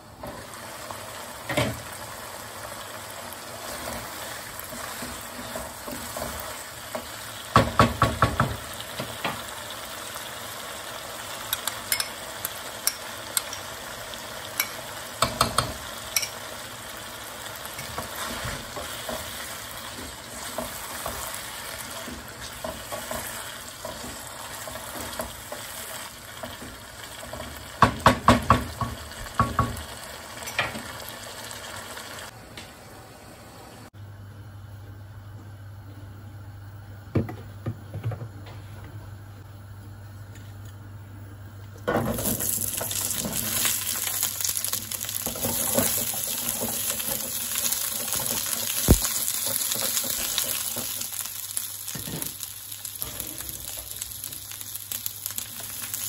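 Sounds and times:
food sizzling in a wok: 0:00.0 - 0:32.4, 0:41.9 - 0:56.0
spoon stirring and knocking pan: 0:04.8 - 0:09.4, 0:11.5 - 0:12.2, 0:14.6 - 0:16.4, 0:17.8 - 0:25.8, 0:26.4 - 0:29.9.

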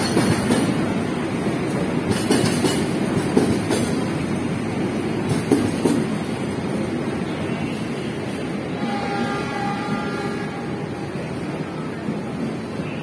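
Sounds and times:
wheels clacking over rail joints: 0:00.0 - 0:01.0, 0:01.6 - 0:04.2, 0:05.2 - 0:06.3
train wheels rumbling on rail: 0:00.0 - 0:13.0.

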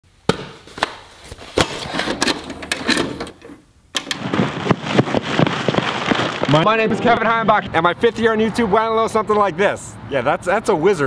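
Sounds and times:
crackling tape static hiss: 0:03.2 - 0:08.4.

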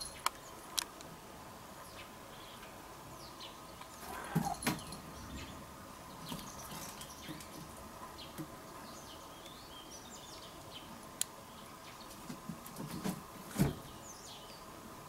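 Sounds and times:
wagtails chirping: 0:01.9 - 0:12.2.

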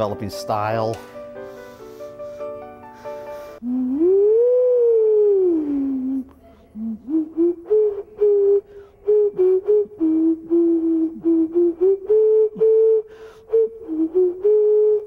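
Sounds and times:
clay whistle playing a tune: 0:07.1 - 0:15.0.

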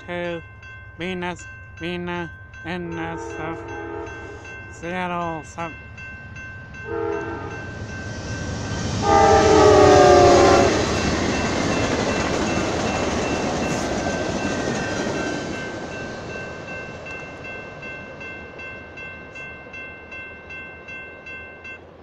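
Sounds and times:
railroad crossing bell ringing: 0:00.0 - 0:22.0
train rumbling past: 0:00.0 - 0:22.0
locomotive horn: 0:03.1 - 0:04.4, 0:06.8 - 0:07.7, 0:09.0 - 0:10.9.

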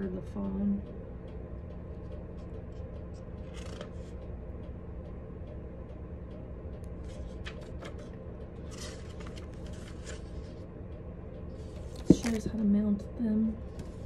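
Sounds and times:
steady low hum: 0:00.0 - 0:14.0
paper pages rustling: 0:03.4 - 0:04.1, 0:07.0 - 0:10.6, 0:11.9 - 0:12.4.

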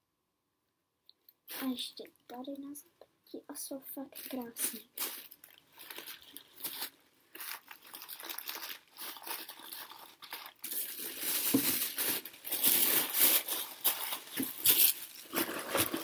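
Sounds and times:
paper and plastic crinkling: 0:04.2 - 0:16.0.

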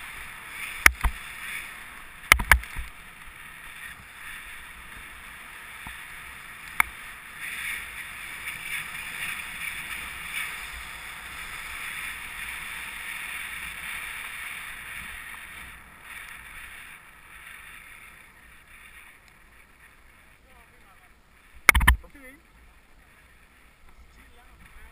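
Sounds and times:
skis hissing on snow: 0:00.0 - 0:21.6
sharp click: 0:02.3 - 0:02.8, 0:21.7 - 0:22.0.

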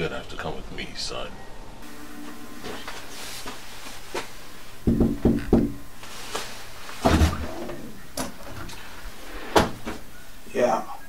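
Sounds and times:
knocks on wooden door: 0:04.8 - 0:05.8.

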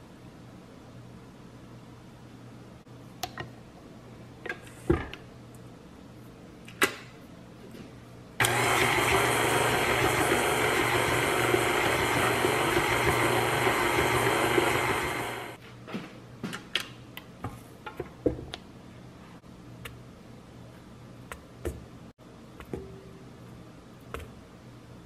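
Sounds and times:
stand mixer motor running: 0:08.4 - 0:15.6.

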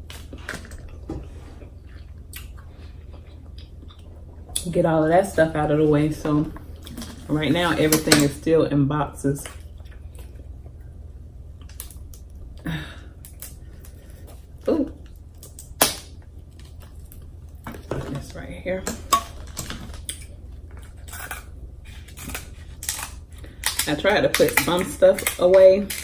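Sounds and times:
crab shell cracking: 0:15.0 - 0:17.3, 0:22.1 - 0:26.0.

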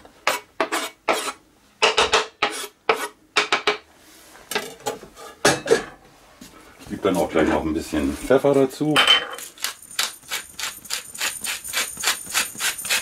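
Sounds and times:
knife scraping cutting board: 0:00.2 - 0:01.4, 0:02.4 - 0:03.2, 0:10.0 - 0:13.0.

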